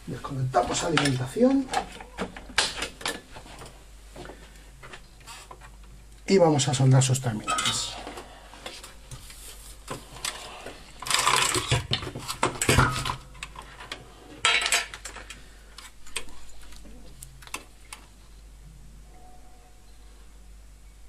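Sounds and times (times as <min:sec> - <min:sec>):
tools clattering and knocking: 0:00.6 - 0:03.8, 0:07.4 - 0:08.3, 0:11.0 - 0:15.4.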